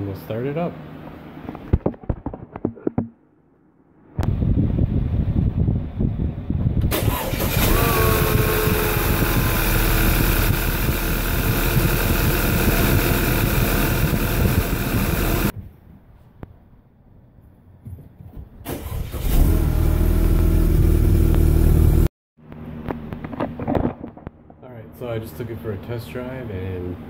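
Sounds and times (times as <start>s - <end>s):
car engine rumble: 4.2s - 15.6s, 17.6s - 24.9s.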